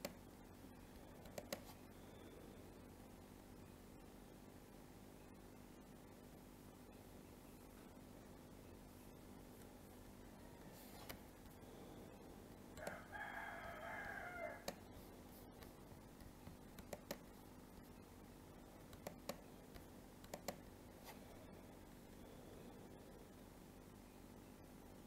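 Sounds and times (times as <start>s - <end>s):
faint steady hum: 0.0s - 25.0s
computer mouse clicks: 1.2s - 1.8s, 14.0s - 14.8s, 15.6s - 17.3s, 18.9s - 20.7s.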